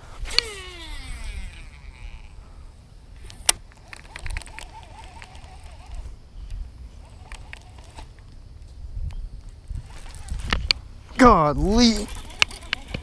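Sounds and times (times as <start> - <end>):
wind rumbling on microphone: 0.0 - 13.0
fishing reel handling: 0.3 - 2.4, 3.2 - 6.0, 7.0 - 8.2, 12.0 - 13.0.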